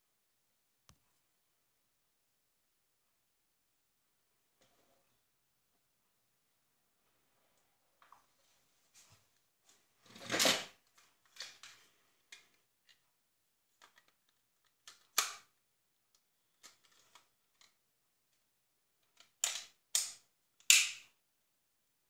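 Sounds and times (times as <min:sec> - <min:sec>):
hard plastic clicks and snaps: 0:13.8 - 0:15.5, 0:19.0 - 0:21.2.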